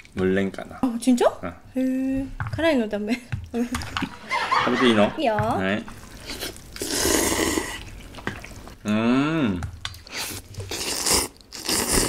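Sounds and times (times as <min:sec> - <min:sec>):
people slurping noodles: 0:05.9 - 0:12.0.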